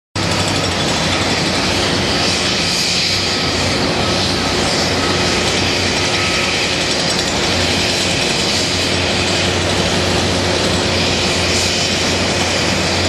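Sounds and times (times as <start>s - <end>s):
excavator diesel engine running: 0.2s - 13.0s.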